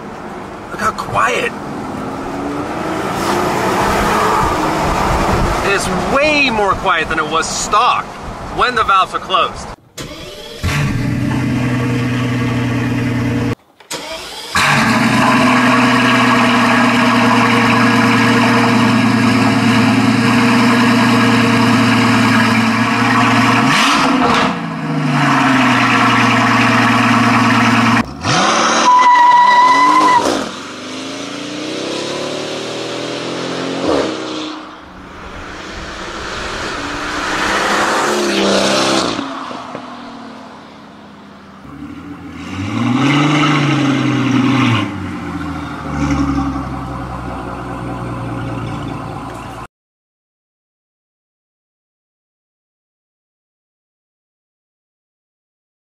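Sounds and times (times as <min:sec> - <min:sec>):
car accelerating hard: 0:00.0 - 0:06.9, 0:14.3 - 0:48.9
engine revving: 0:00.7 - 0:06.4, 0:10.0 - 0:48.9.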